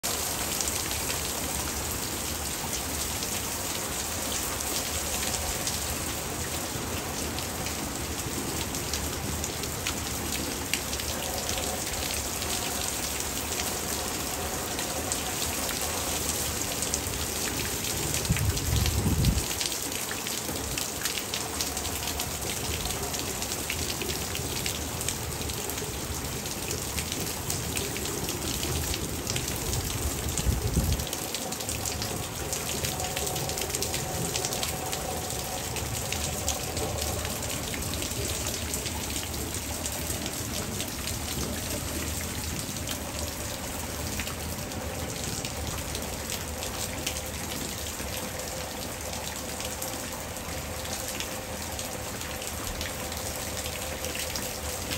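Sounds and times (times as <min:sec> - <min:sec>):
hard rain falling: 0:00.0 - 0:54.9.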